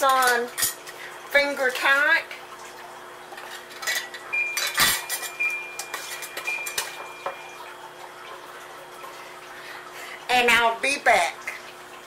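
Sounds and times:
metal lids clinking on glass jars: 3.5 - 7.4.

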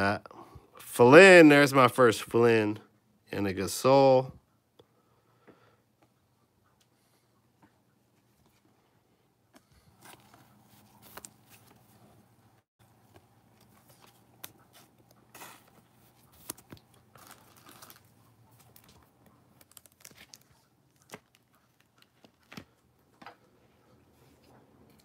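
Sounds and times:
card and glove rustling: 9.5 - 24.5.

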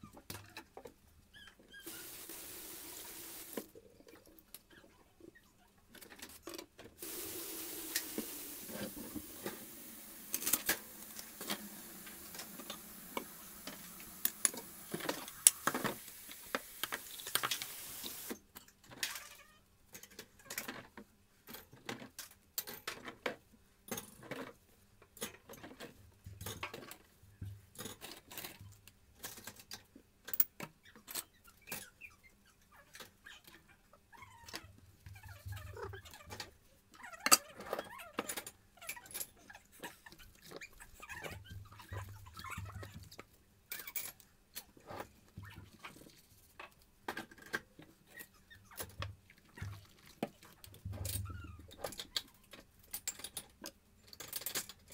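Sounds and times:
tap running: 1.8 - 3.7, 7.0 - 18.3.

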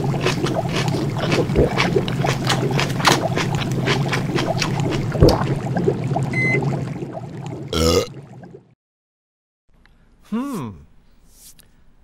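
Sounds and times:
broth bubbling: 0.0 - 8.8.

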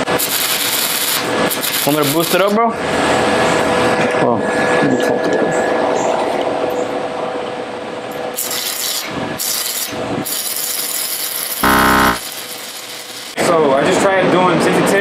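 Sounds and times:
welding arc crackling: 0.2 - 2.4, 8.4 - 13.4
short loud buzz: 11.6 - 12.2.

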